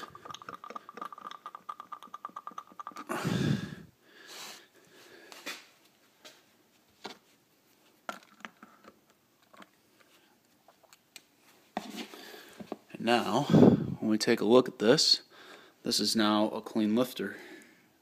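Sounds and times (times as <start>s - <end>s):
fast small clicks: 0.0s - 3.1s.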